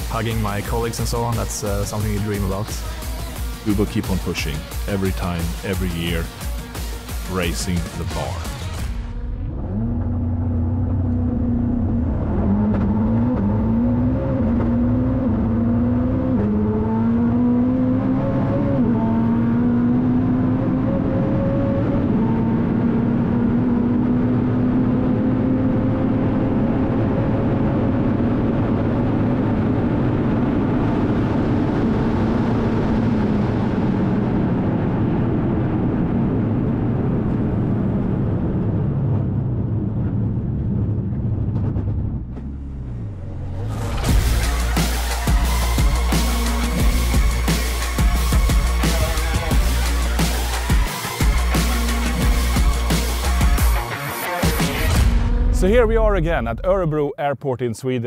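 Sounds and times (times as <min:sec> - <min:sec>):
sports car engine accelerating: 0:00.0 - 0:56.0
wind and tyre noise: 0:09.2 - 0:44.4.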